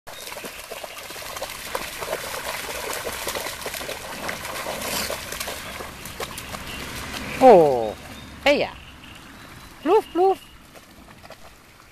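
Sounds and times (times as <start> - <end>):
dogs splashing through water: 0.1 - 11.9.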